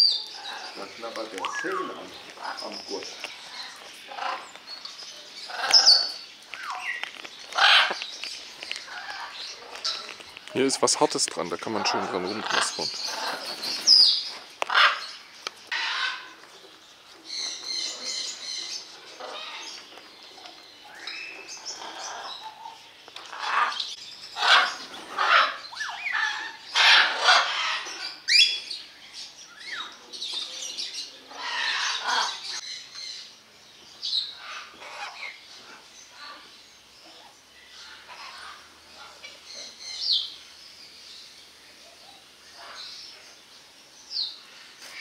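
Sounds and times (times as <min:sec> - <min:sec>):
parrots squawking: 0:00.1 - 0:04.6, 0:05.4 - 0:08.0, 0:08.8 - 0:10.2, 0:11.6 - 0:16.4, 0:17.7 - 0:19.8, 0:20.8 - 0:28.6, 0:31.2 - 0:32.6, 0:34.2 - 0:36.5, 0:37.2 - 0:40.2, 0:42.5 - 0:42.9.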